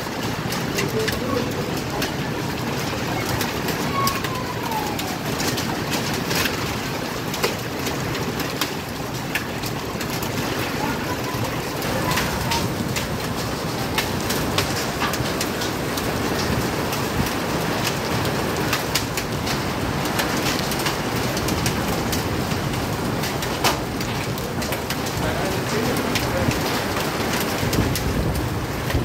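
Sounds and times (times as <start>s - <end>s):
rain on a hard floor: 0.0s - 29.0s.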